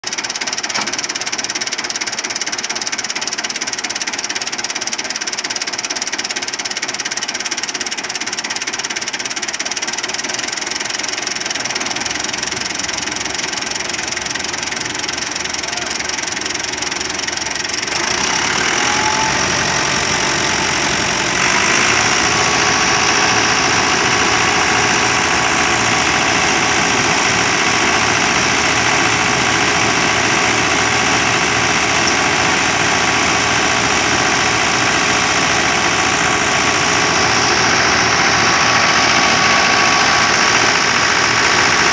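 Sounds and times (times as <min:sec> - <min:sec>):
tractor diesel engine running: 0:00.0 - 0:41.9
thresher drum whirring: 0:12.0 - 0:41.9.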